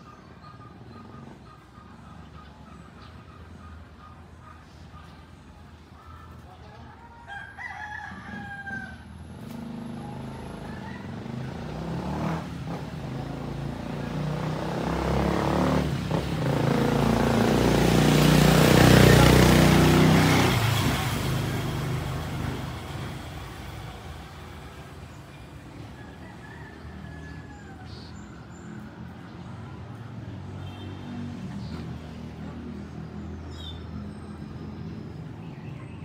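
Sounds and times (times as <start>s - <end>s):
vehicle driving past: 8.3s - 36.0s.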